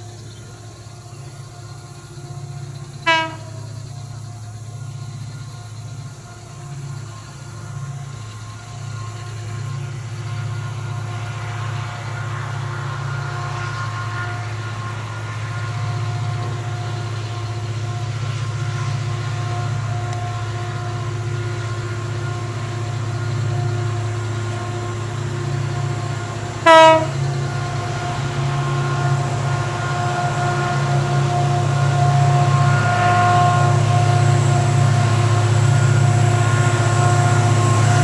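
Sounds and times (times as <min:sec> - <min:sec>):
diesel locomotive engines droning: 0:00.0 - 0:38.0
locomotive air horn blast: 0:03.0 - 0:03.9, 0:23.4 - 0:38.0.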